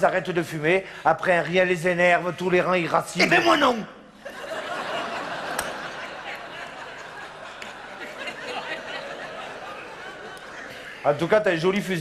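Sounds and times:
audience laughing: 0:04.2 - 0:11.3.

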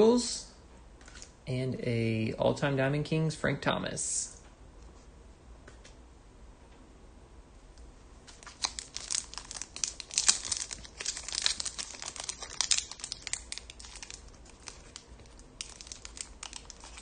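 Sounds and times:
card wrapper tearing and crinkling: 0:08.3 - 0:17.0.

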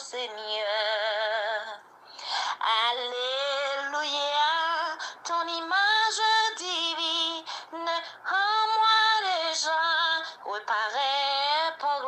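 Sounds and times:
woman singing a hymn: 0:00.0 - 0:12.0
singer breathing: 0:02.0 - 0:02.6, 0:05.0 - 0:05.2, 0:07.4 - 0:08.2.

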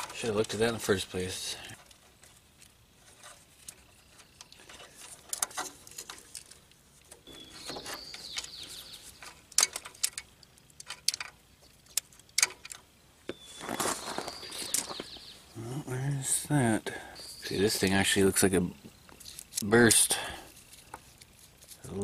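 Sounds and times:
high chirping call: 0:07.2 - 0:09.3, 0:13.3 - 0:15.6.

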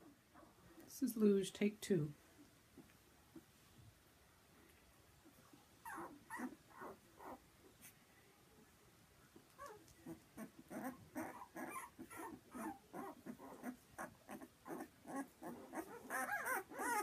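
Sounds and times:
puppy whimpering and squeaking: 0:05.8 - 0:07.4, 0:09.6 - 0:17.0.

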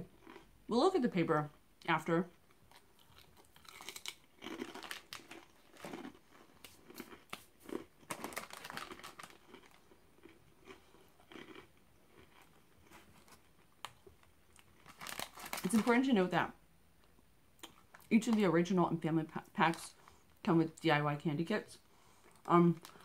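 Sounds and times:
crackers being crunched: 0:02.5 - 0:16.1, 0:22.3 - 0:23.0
plastic wrapper crinkling: 0:03.0 - 0:09.9, 0:14.6 - 0:16.1, 0:22.7 - 0:23.0.

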